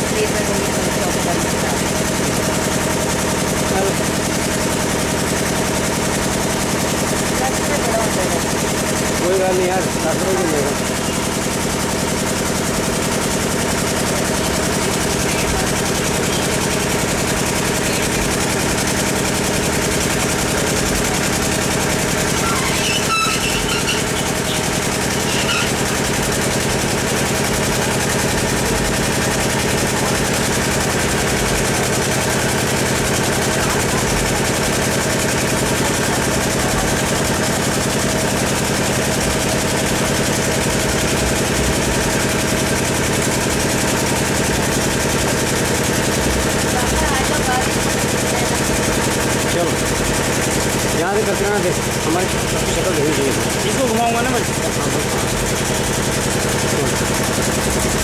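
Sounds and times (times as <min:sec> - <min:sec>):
engine idling: 0:00.0 - 0:58.0.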